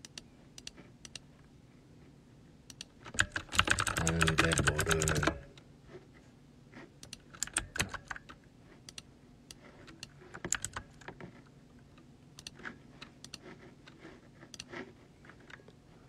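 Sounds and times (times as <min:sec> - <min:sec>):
keyboard typing: 0:02.7 - 0:05.6, 0:07.0 - 0:09.0, 0:09.9 - 0:11.0.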